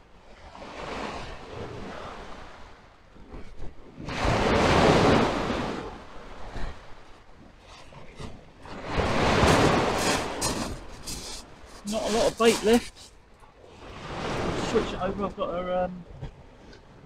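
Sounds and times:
wind on microphone: 0.5 - 13.1
waves washing on shingle: 8.2 - 13.1.

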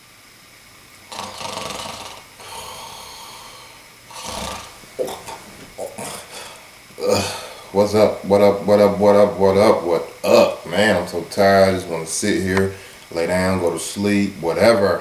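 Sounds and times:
man snoring: 1.1 - 7.8
short sharp breaths: 12.7 - 13.1.

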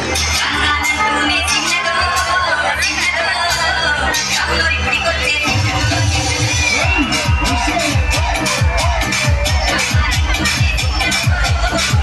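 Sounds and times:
loud amplified dance music: 0.0 - 12.0
heavy drum beat: 5.6 - 12.0.

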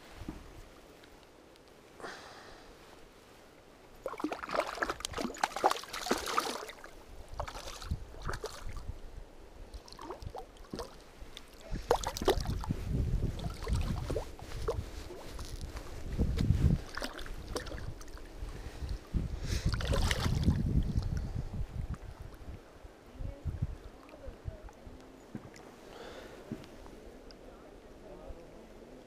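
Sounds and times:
fish splashing in water: 4.0 - 8.8, 9.8 - 12.7, 16.9 - 18.2, 19.7 - 20.6.

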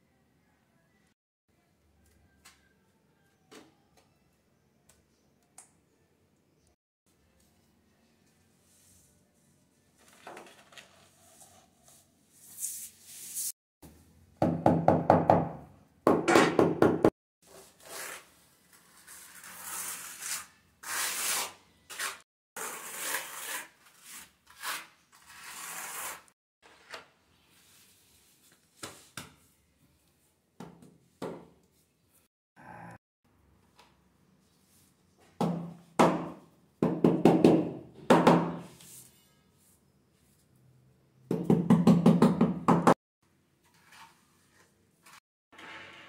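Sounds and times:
trowel scraping adhesive on wall: 17.6 - 26.9, 43.6 - 46.0.

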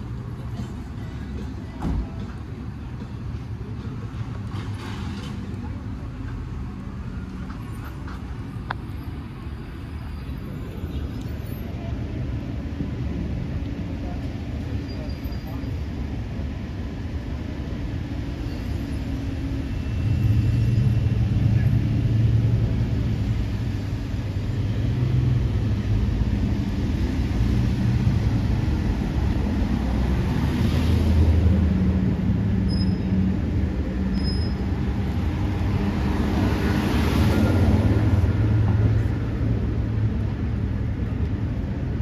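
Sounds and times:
road traffic noise: 0.0 - 42.0
vehicles passing: 0.0 - 42.0.

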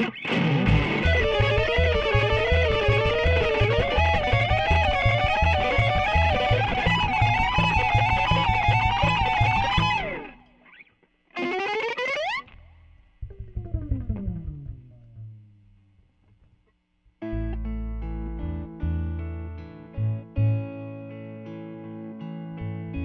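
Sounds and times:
stand-up bass line: 0.0 - 10.5, 11.4 - 21.0
guitar slide: 0.0 - 15.4
electric guitar melody: 0.0 - 16.5, 17.2 - 23.0.

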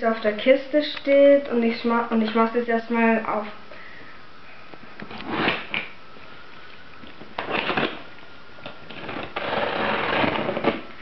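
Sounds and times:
cardboard box rustling scrapes: 8.9 - 10.8.

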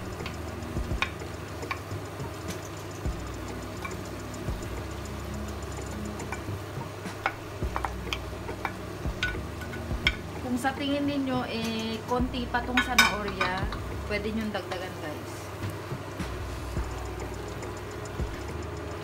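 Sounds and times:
steady low hum: 0.0 - 19.0
spoon knocking against pot: 7.2 - 10.2.

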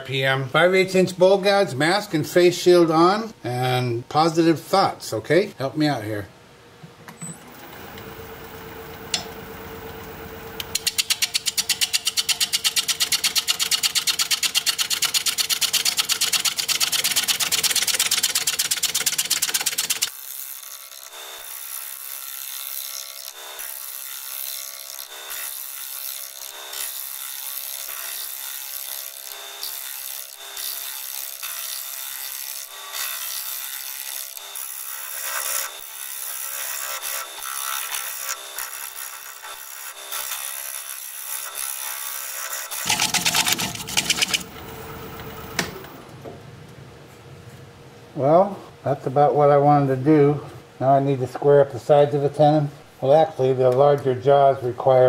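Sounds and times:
gouge cutting wood on a lathe: 10.6 - 46.0.

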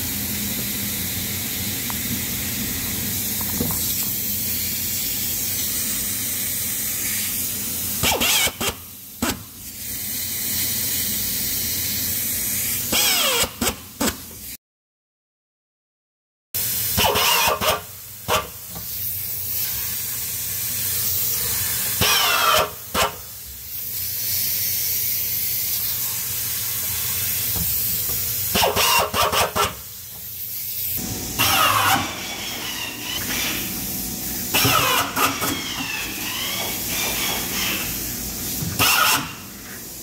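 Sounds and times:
pneumatic screwdriver whine: 8.0 - 8.8, 12.9 - 13.7, 16.9 - 18.5, 21.7 - 23.2, 28.5 - 29.8, 31.0 - 33.7, 34.5 - 39.6
air hiss: 18.6 - 22.6, 23.5 - 31.1.

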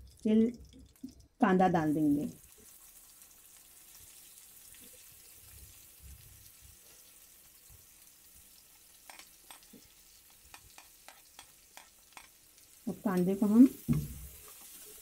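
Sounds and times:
onions sizzling in oil: 1.4 - 15.0
spoon tapping and scraping plate: 9.0 - 12.4.

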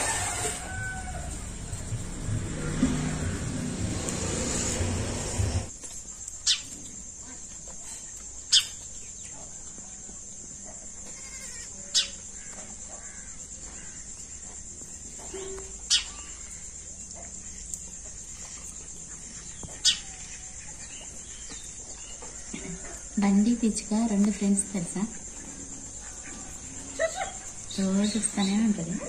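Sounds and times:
background noise: 0.0 - 29.0
sparrow chirping: 15.8 - 16.5, 17.5 - 22.4.

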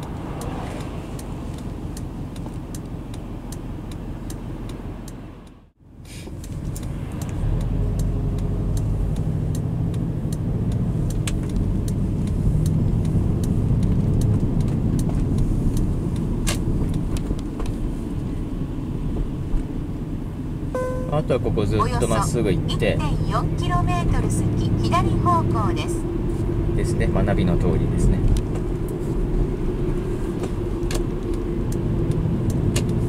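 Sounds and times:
car engine droning in cabin: 0.0 - 33.0.

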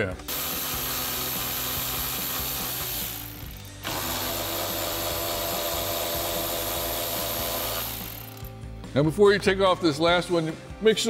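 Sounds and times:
electric ratchet spinning nuts: 0.3 - 8.6.

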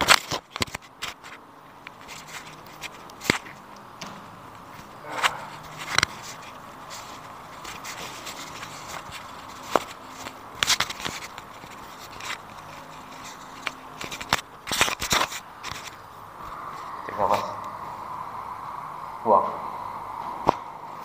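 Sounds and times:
hands rubbing on cloth: 5.1 - 16.0.

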